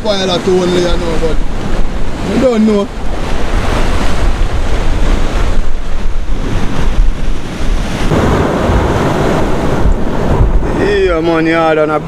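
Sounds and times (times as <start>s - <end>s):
surf breaking on rocks: 0.0s - 12.0s
wind buffeting microphone: 0.0s - 12.0s.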